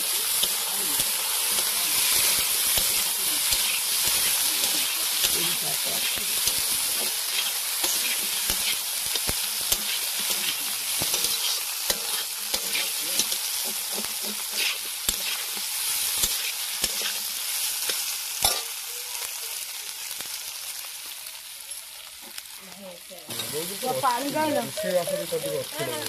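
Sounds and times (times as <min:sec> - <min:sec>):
food sizzling in a pan: 0:00.0 - 0:26.0
metal spatula scraping a pan: 0:01.6 - 0:15.6.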